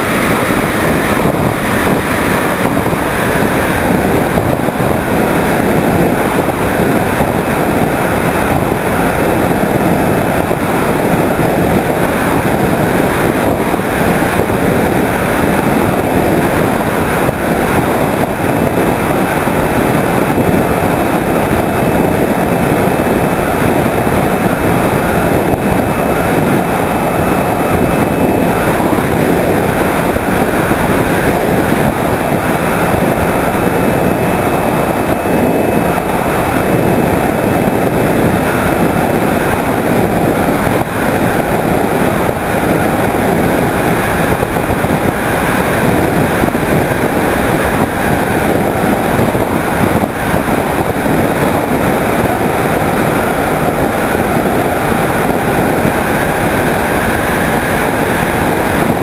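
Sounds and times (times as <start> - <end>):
electric motor and propeller drone: 0.0 - 59.0
wind rush: 0.0 - 59.0.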